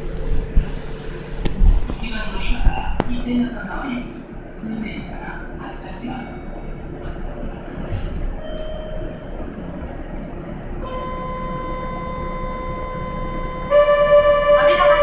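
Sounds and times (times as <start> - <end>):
low hum of standing train: 0.0 - 15.0
electronic departure tone: 10.8 - 15.0.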